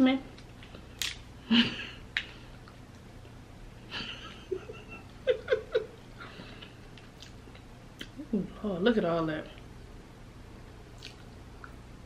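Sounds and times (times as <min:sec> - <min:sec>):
woman giggling: 0:01.4 - 0:02.0, 0:03.9 - 0:06.6
woman breathing: 0:06.2 - 0:06.9.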